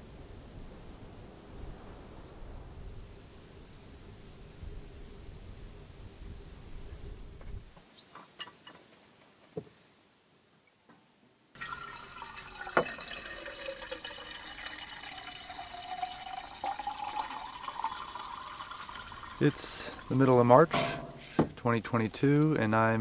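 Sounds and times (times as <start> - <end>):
liquid pouring into metal tumbler: 11.6 - 21.4.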